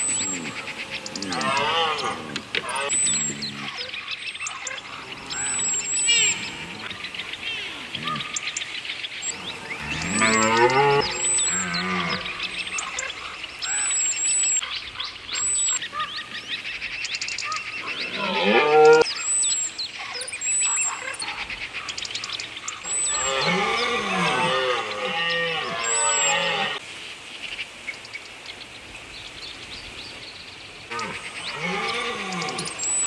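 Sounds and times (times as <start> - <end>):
faint bird chirps: 0.0 - 24.5, 29.2 - 33.0
deer stags roaring: 9.3 - 12.8, 30.9 - 32.8.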